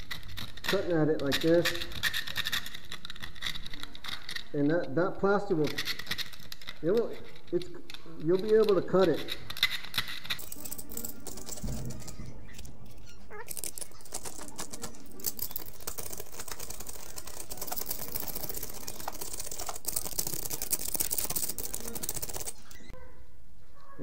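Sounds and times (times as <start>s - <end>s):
razor blade scraping plaster: 13.0s - 23.0s.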